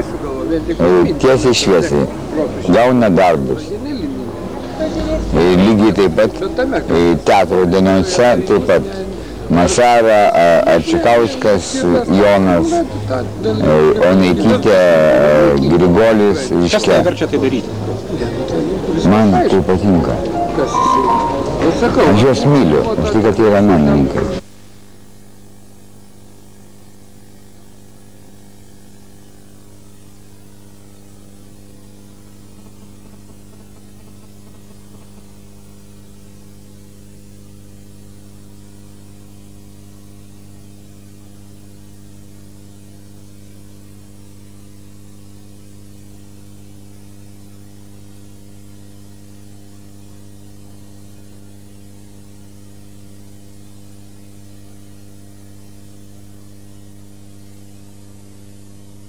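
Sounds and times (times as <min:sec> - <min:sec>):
electrical mains hum: 0:00.0 - 0:24.4.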